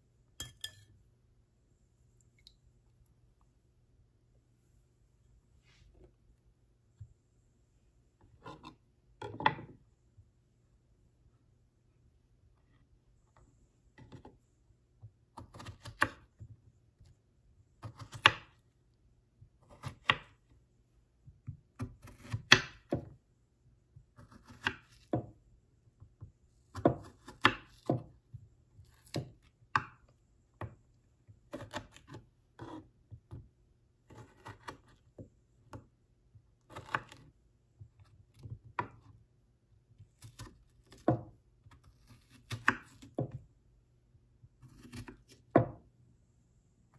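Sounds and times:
knife cutting on wooden board: 0:08.4 - 0:09.7, 0:31.5 - 0:32.9, 0:34.1 - 0:35.0, 0:36.7 - 0:37.3, 0:40.2 - 0:43.4, 0:44.6 - 0:45.8.

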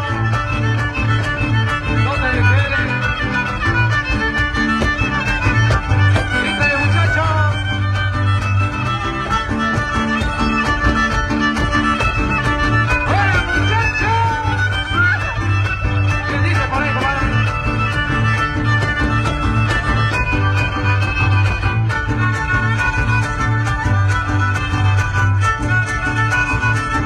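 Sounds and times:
strummed guitars: 0:00.0 - 0:27.0
violin sliding melody: 0:00.0 - 0:27.0.

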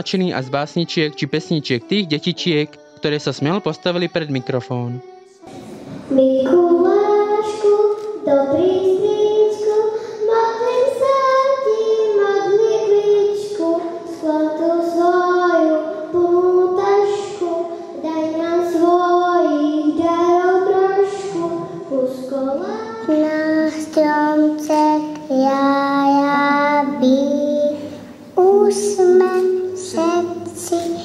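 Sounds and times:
child singing into a microphone: 0:00.0 - 0:31.0.

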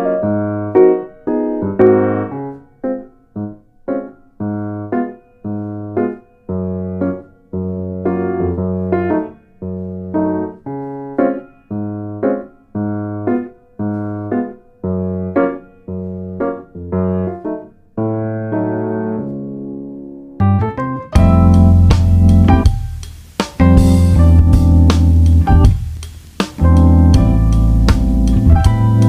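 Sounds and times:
piano chords: 0:00.0 - 0:29.0
low bass notes: 0:20.4 - 0:22.9, 0:23.6 - 0:26.0, 0:26.6 - 0:29.0.

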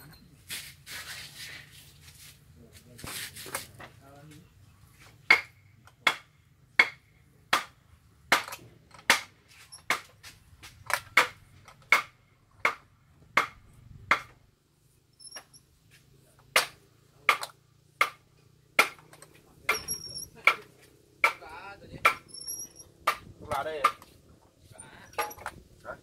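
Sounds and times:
sharp knocks on metal: 0:05.2 - 0:10.2, 0:10.8 - 0:14.4, 0:16.5 - 0:18.2, 0:18.8 - 0:24.2.

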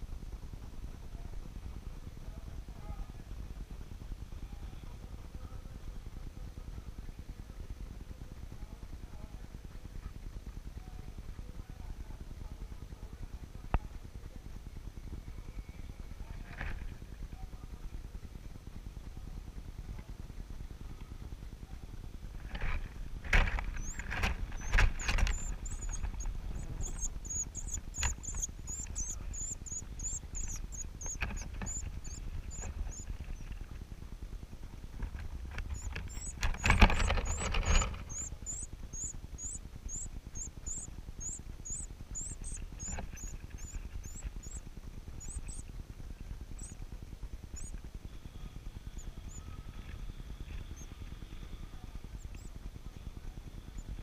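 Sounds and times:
wing fluttering and rustling: 0:02.4 - 0:54.0
chicks begging with high cheeps: 0:23.5 - 0:33.5, 0:35.6 - 0:45.6, 0:46.5 - 0:46.8, 0:47.5 - 0:47.7.

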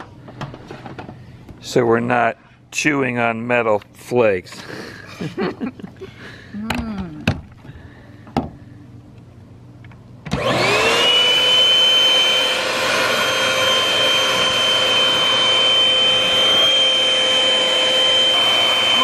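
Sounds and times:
handheld vacuum cleaner whine: 0:10.3 - 0:19.0.

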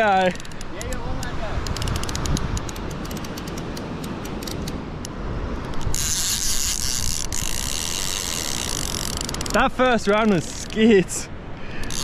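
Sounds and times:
fishing reel clicking and buzzing: 0:01.6 - 0:04.8, 0:05.6 - 0:09.6, 0:11.8 - 0:12.0.

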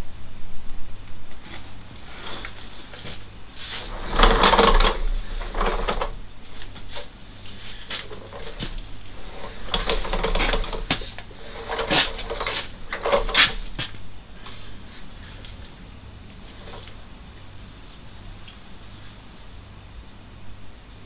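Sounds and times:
clattering and knocking: 0:03.8 - 0:06.2, 0:07.9 - 0:14.0.

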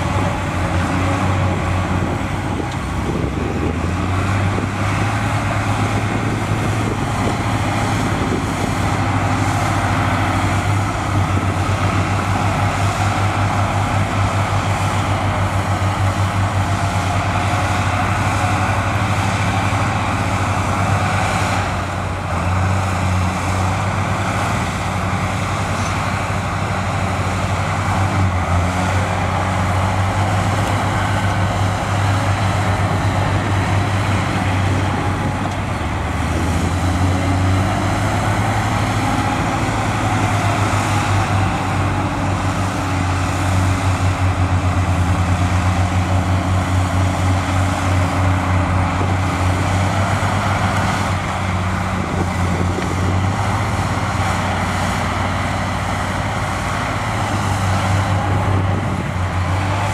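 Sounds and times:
heavy diesel engine throbbing: 0:00.0 - 0:59.9.

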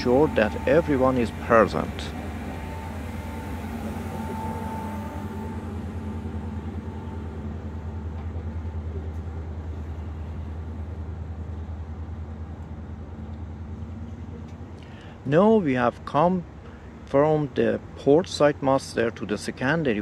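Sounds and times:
faint thin whine: 0:00.0 - 0:10.5
machinery engine-like hum: 0:00.0 - 0:20.0.

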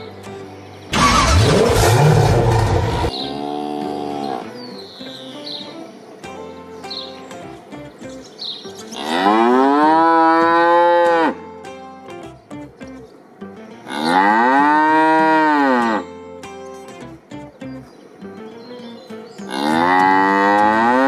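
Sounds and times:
cow mooing: 0:01.5 - 0:04.6, 0:09.0 - 0:11.4, 0:13.9 - 0:16.0, 0:19.5 - 0:21.0.

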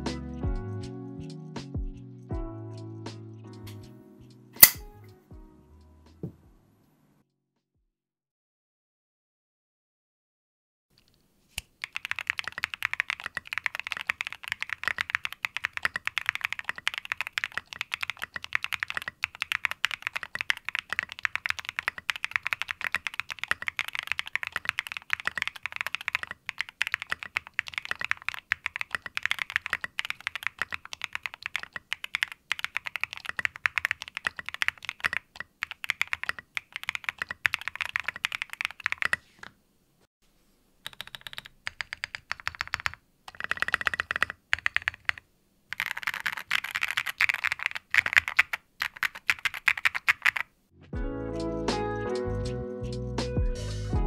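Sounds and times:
mechanical keyboard typing: 0:11.0 - 0:39.5, 0:40.8 - 0:50.5.

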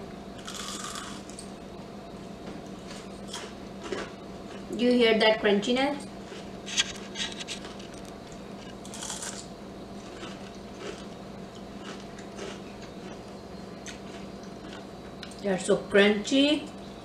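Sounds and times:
crunchy food being chewed: 0:00.4 - 0:01.5, 0:02.9 - 0:04.7, 0:06.2 - 0:15.4.

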